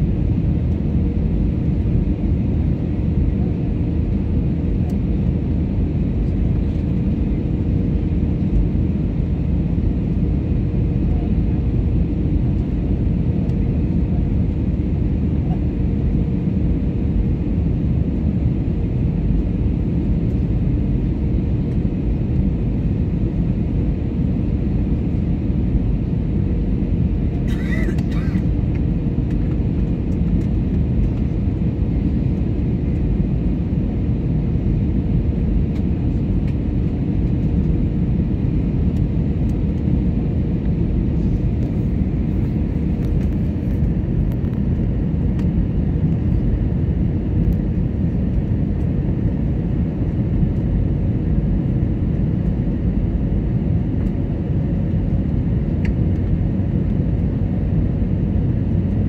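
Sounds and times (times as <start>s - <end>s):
airliner cabin rumble: 0.0s - 59.0s.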